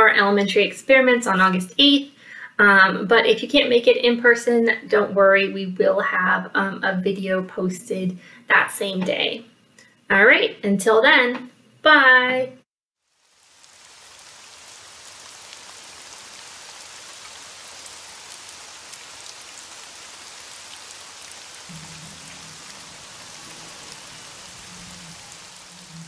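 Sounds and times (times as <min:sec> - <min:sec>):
falling water patter: 0:13.0 - 0:26.0.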